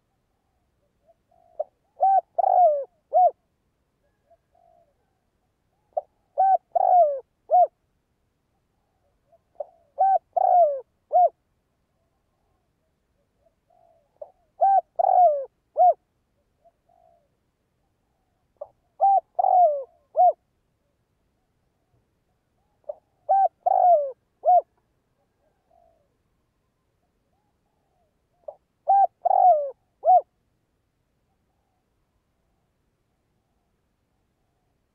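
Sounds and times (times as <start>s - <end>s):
dove cooing: 1.0s - 3.4s, 4.0s - 7.8s, 8.9s - 11.4s, 13.4s - 16.0s, 16.6s - 17.4s, 18.1s - 20.4s, 22.6s - 26.2s, 27.3s - 30.3s.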